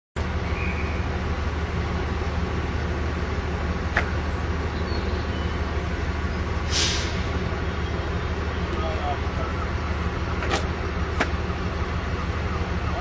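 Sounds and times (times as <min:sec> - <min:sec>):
diesel engine idling: 0:00.2 - 0:13.0
short hiss: 0:06.7 - 0:07.3.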